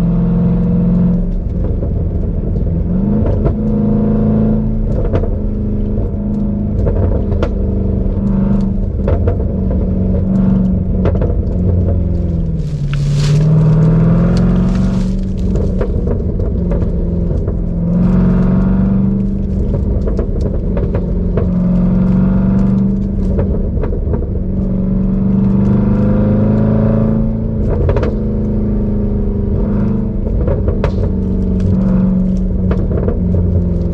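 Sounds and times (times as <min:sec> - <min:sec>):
car engine accelerating: 0:00.0 - 0:33.9
sharp exhaust pops: 0:27.1 - 0:33.9.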